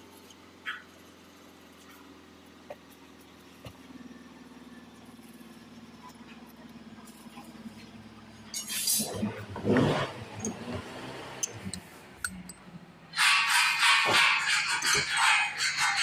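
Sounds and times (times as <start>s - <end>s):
metal parts clicking: 8.5s - 9.1s, 11.4s - 16.0s
loud rustling scrape: 13.1s - 16.0s.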